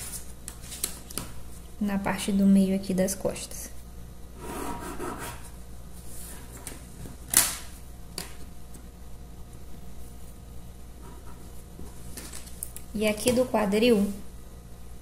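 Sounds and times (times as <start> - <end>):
pencil scratching on paper: 4.4 - 5.6.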